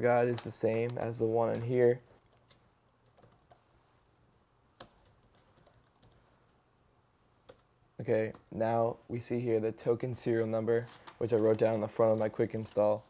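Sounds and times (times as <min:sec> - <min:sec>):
laptop keyboard keystrokes: 0:04.8 - 0:06.2.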